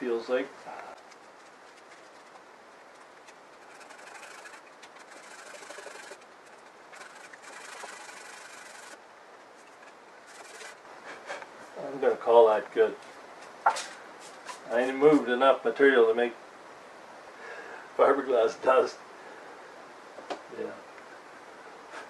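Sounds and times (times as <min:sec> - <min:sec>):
sandpaper rasping: 0:03.2 - 0:09.0, 0:10.3 - 0:10.8.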